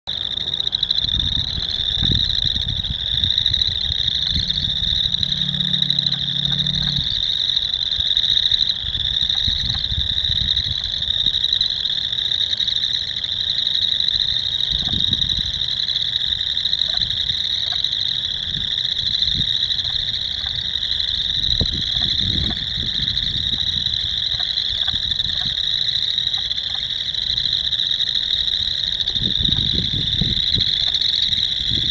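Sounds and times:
frogs trilling in chorus: 0:00.1 - 0:31.9
low rumbles: 0:01.1 - 0:08.0.

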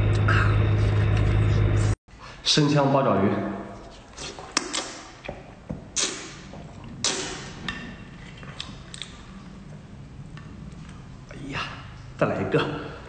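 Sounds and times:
wet slurping: 0:03.8 - 0:09.6
mouth smacks while chewing: 0:06.0 - 0:07.4, 0:08.3 - 0:09.2.

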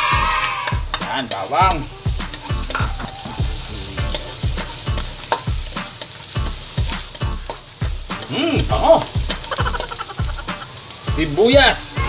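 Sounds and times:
garlic sizzling in hot oil: 0:00.0 - 0:12.0
spatula stirring in a wok: 0:00.6 - 0:12.0.

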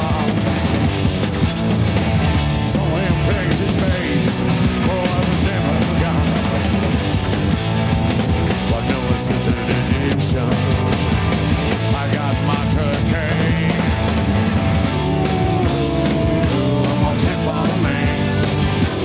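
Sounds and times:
man singing: 0:00.0 - 0:00.6, 0:02.5 - 0:06.9, 0:08.6 - 0:11.1, 0:11.7 - 0:14.2, 0:15.0 - 0:19.0
electric bass: 0:00.0 - 0:19.0.

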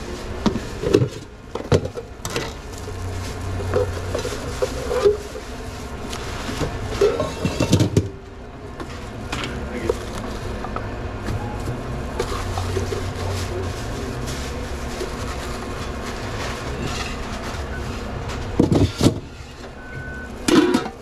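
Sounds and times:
low machine hum: 0:00.0 - 0:21.0
metal pans clanking: 0:06.6 - 0:08.2, 0:20.4 - 0:21.0.

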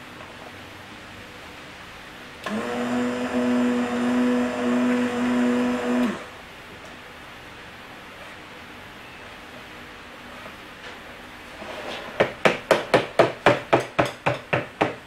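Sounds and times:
stick blender motor hum: 0:02.4 - 0:06.4.

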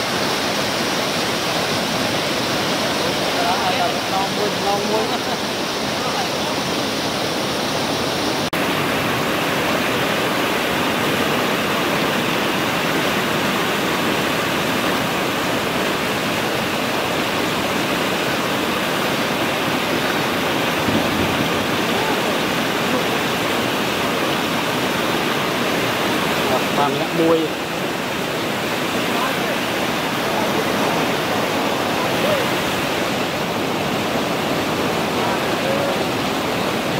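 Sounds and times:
water rushing over spillway: 0:00.0 - 0:36.9.

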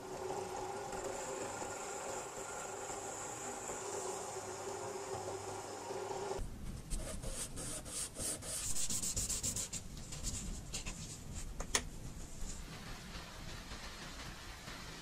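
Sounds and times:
washer rubbed on sandpaper: 0:07.1 - 0:09.8.

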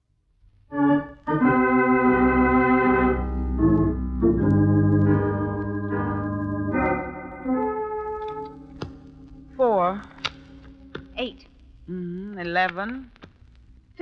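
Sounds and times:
organ chords: 0:00.7 - 0:11.0.

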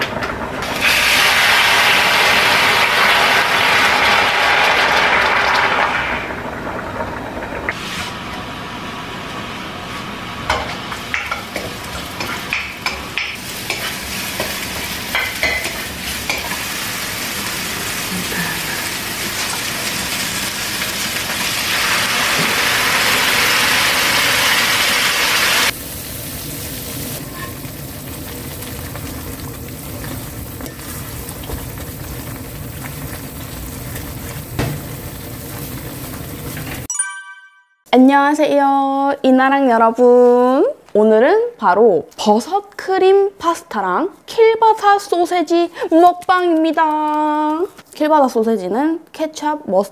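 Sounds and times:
mushrooms sizzling in oil: 0:00.6 - 0:06.1, 0:09.6 - 0:36.9
sauce sizzling in hot pan: 0:00.6 - 0:06.4, 0:10.3 - 0:36.9.

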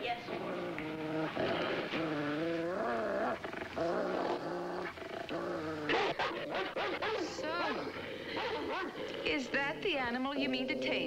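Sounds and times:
dog snarling and growling: 0:00.0 - 0:11.0
dog barking: 0:05.9 - 0:07.7, 0:08.3 - 0:09.0.

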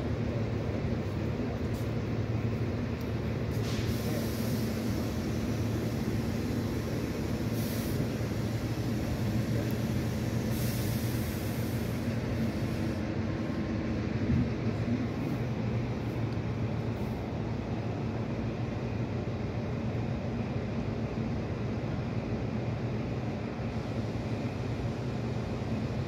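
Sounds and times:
diesel train engine drone: 0:00.0 - 0:26.0
air hisses: 0:03.5 - 0:13.1.

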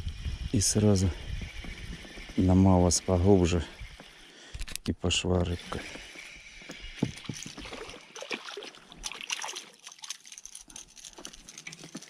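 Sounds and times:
fish splashing in water: 0:07.6 - 0:10.6.

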